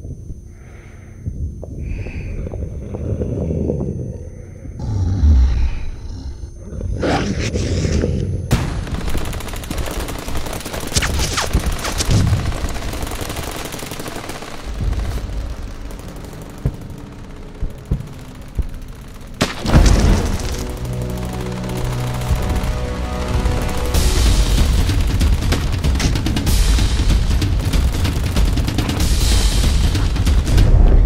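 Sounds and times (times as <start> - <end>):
automatic gunfire: 8.5 - 30.6
heavy blast: 14.6 - 31.0.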